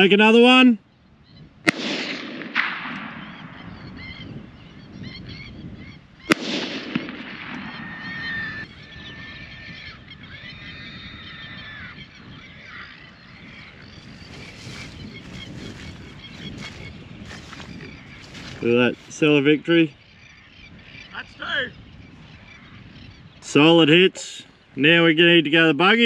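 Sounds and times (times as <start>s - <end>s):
rifle shots with echo: 1.6s - 3.8s, 6.3s - 8.0s
waterbirds calling: 2.9s - 26.0s.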